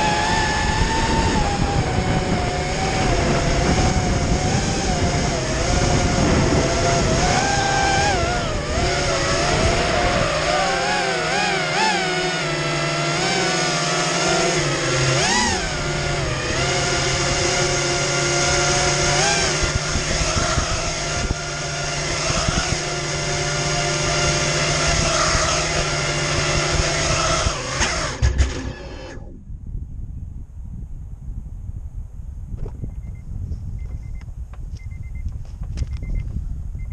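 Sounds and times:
drone knocking down on asphalt: 0:00.0 - 0:29.3
drone motors whining: 0:00.0 - 0:29.5.

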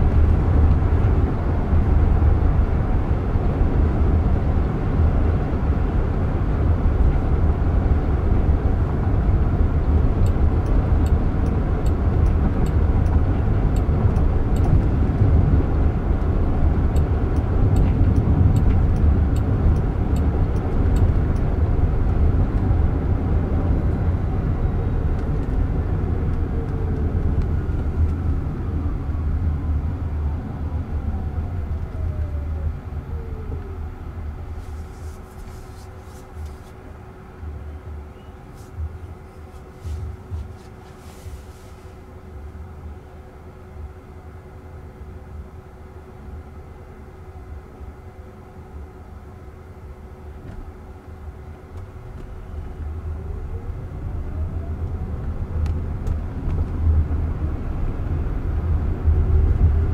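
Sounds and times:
road and tyre noise in car cabin: 0:00.0 - 0:59.9
light regular ticking: 0:16.9 - 0:21.5.

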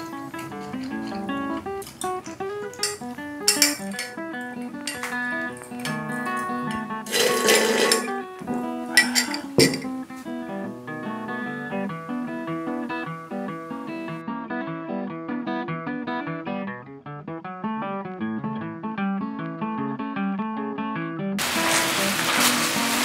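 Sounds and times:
acoustic guitar plucking: 0:00.0 - 0:23.0
loud steady hiss: 0:21.4 - 0:23.0.

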